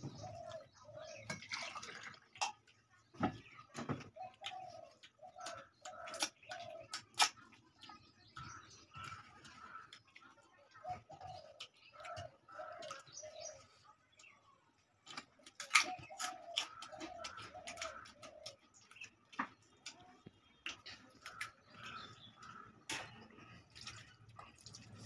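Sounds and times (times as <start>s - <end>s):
dove cooing: 0.0s - 1.4s, 4.0s - 7.0s, 10.8s - 13.6s, 15.6s - 18.6s.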